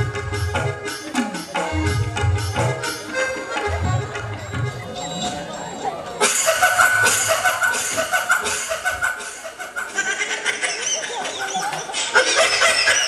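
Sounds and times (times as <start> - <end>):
audience laughing: 3.0 - 13.0.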